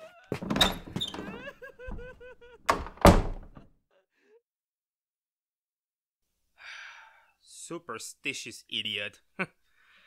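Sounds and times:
door shutting with heavy thuds: 0:00.3 - 0:03.7.

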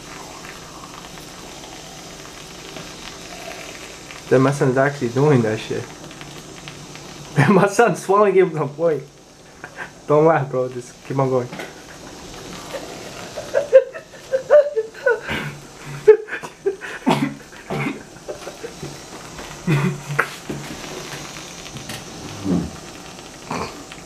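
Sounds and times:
aerosol can hissing: 0:00.0 - 0:24.0
mouth and throat noises: 0:15.2 - 0:24.0
muffled vocal sounds: 0:15.2 - 0:24.0.

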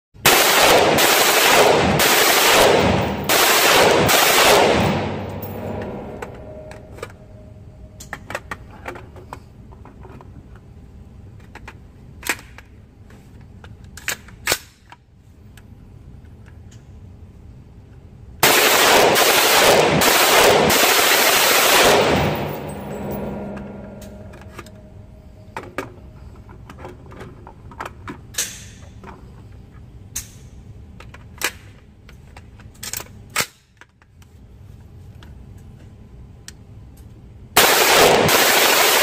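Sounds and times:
rifle rapid fire: 0:00.2 - 0:06.7, 0:18.4 - 0:24.8, 0:37.6 - 0:39.0.

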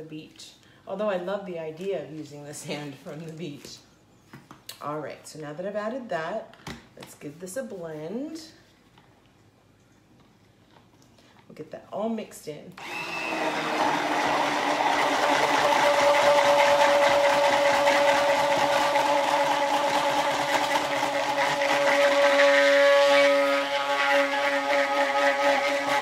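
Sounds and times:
stick blender motor whine: 0:12.8 - 0:26.0.

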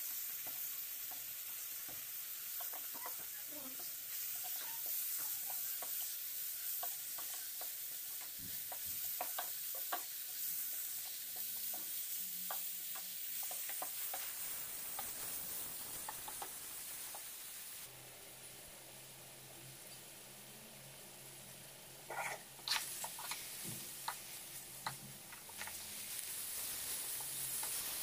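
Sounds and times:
vegetables sizzling in a frying pan: 0:00.0 - 0:28.0
spatula scraping and tapping pan: 0:00.4 - 0:15.3, 0:22.1 - 0:28.0.

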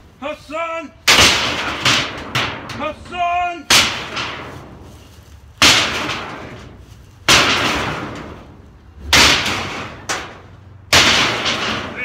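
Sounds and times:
sledgehammer banging sheet metal: 0:01.0 - 0:04.9, 0:05.6 - 0:12.0.

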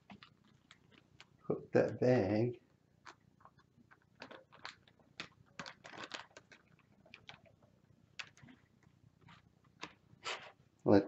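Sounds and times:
plastic bag crinkling: 0:03.0 - 0:07.6.

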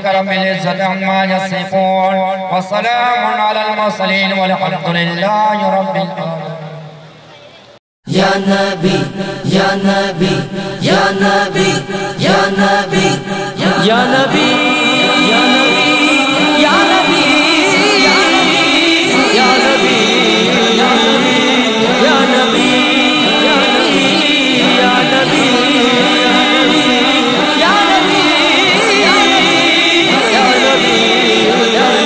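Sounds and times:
voices singing devotional chant: 0:08.1 - 0:32.0.

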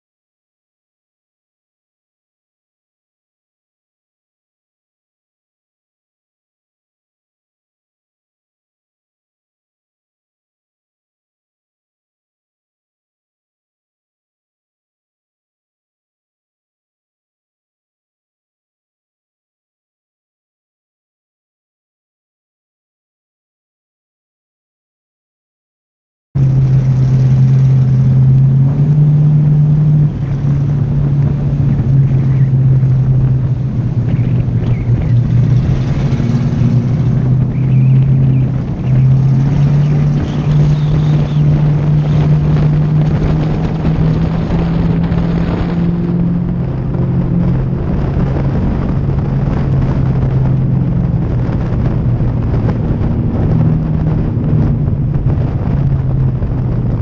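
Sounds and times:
race car engine running hard: 0:26.4 - 0:57.0.

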